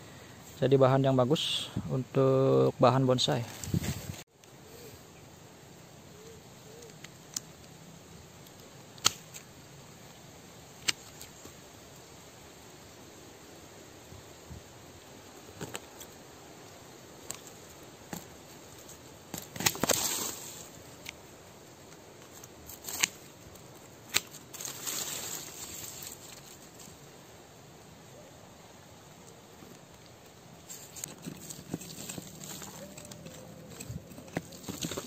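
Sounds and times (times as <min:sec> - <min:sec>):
dry leaves rustling: 0:03.2 - 0:04.2, 0:15.2 - 0:27.3, 0:29.8 - 0:35.0
scratching in soil: 0:03.2 - 0:04.3, 0:17.2 - 0:21.2, 0:21.8 - 0:27.1, 0:29.6 - 0:35.0
pruning shears snipping: 0:08.5 - 0:09.5, 0:10.8 - 0:11.4, 0:19.3 - 0:21.2, 0:22.3 - 0:23.3, 0:24.0 - 0:26.8.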